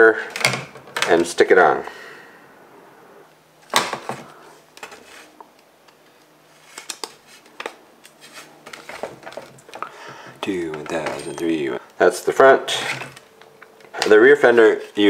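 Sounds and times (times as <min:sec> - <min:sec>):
plastic parts clattering: 0:06.6 - 0:11.7.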